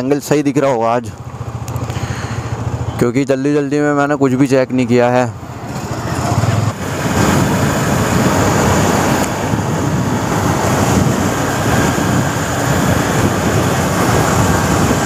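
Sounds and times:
road noise: 0.0s - 15.0s
motorcycle engine: 0.5s - 3.2s, 4.0s - 15.0s
wind rushing on microphone: 5.6s - 15.0s.

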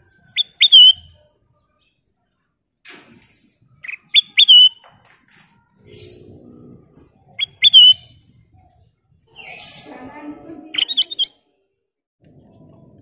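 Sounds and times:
bird chirps and slurred whistle: 0.3s - 1.0s, 3.9s - 4.8s, 7.4s - 8.1s, 10.8s - 11.4s.

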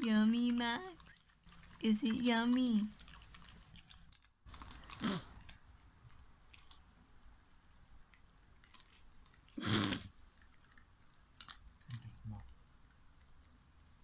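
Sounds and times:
dog licking and chewing: 0.0s - 14.0s.

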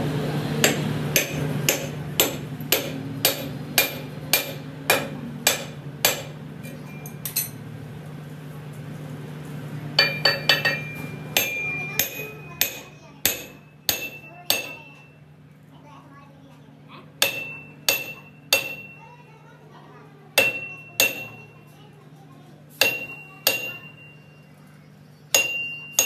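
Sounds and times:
steady low hum: 0.0s - 26.0s
hammer striking steel chisel: 0.6s - 7.6s, 10.0s - 15.0s, 17.2s - 19.0s, 20.4s - 21.4s, 22.8s - 24.0s, 25.3s - 26.0s.

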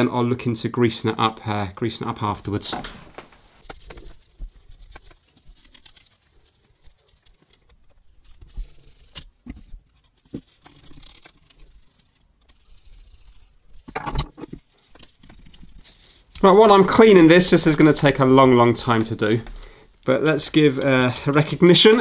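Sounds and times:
wet wipe rustling and crinkling: 2.6s - 13.9s, 20.0s - 22.0s.

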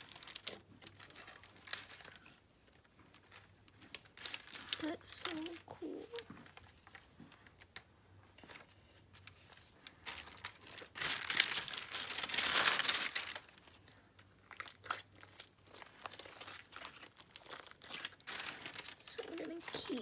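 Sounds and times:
small crackling clicks: 0.0s - 7.9s
crinkling stretch: 0.0s - 20.0s
hands squeezing slime: 10.2s - 20.0s.

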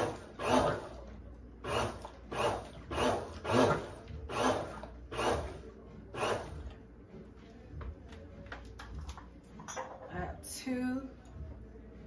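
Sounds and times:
blender crushing ice: 1.7s - 5.5s.

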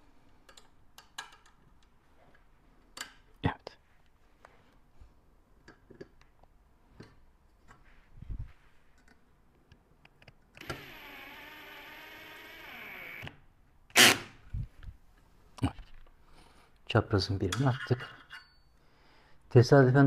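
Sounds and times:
cordless drill driving a screw: 10.6s - 13.4s, 14.0s - 14.2s.

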